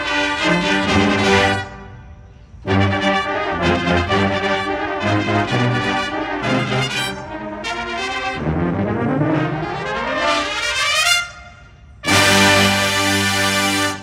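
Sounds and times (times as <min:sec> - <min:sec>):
brass ensemble playing: 0:00.0 - 0:14.0.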